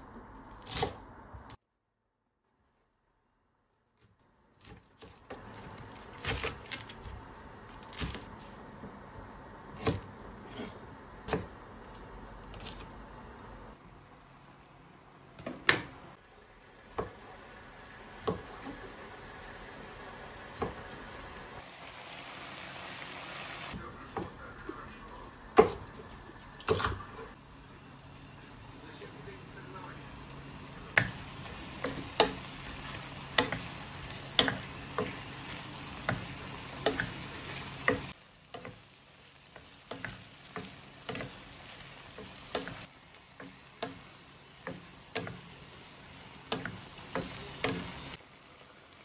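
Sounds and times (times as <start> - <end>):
wooden spatula in frying pan: 15.3 - 24.4, 29.7 - 49.0.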